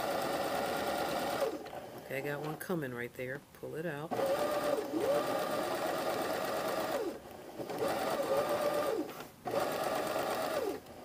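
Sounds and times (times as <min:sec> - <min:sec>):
sewing machine stitching: 0:00.0 - 0:01.8, 0:04.1 - 0:11.0.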